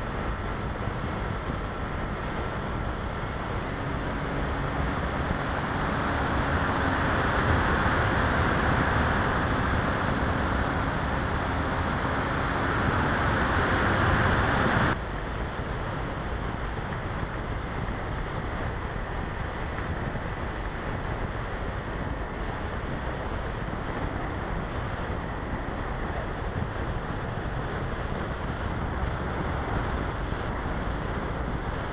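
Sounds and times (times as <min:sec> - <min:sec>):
electric motor and propeller hum: 0:00.0 - 0:31.9
wind rushing over camera: 0:00.0 - 0:31.9.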